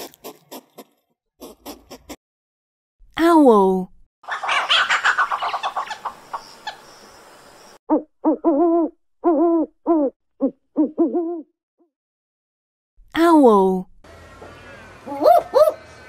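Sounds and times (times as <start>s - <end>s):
owl hooting: 15.1s - 15.8s.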